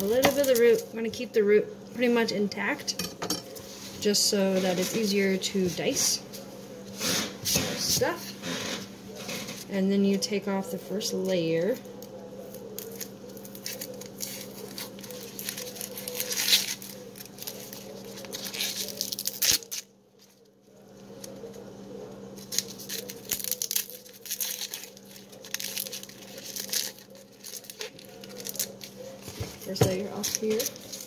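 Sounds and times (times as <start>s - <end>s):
onion skin crackling and tearing: 12.0s - 20.4s, 22.3s - 31.0s.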